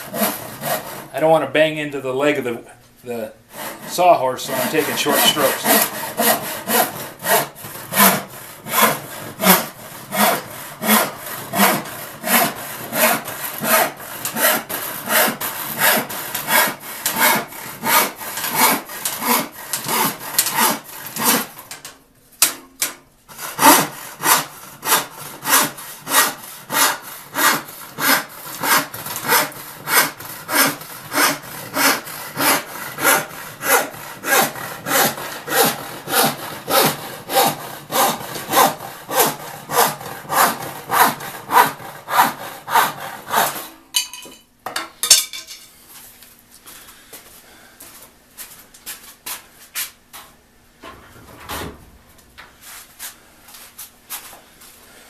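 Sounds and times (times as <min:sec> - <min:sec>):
hand saw ripping wood: 0:00.0 - 0:01.3, 0:03.5 - 0:21.8, 0:23.3 - 0:43.8.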